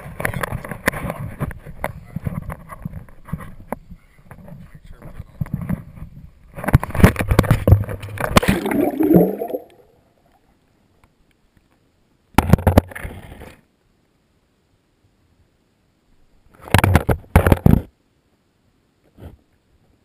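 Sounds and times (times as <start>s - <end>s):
splash into water: 8.2s - 9.8s
bubbles gurgling underwater: 8.4s - 9.8s.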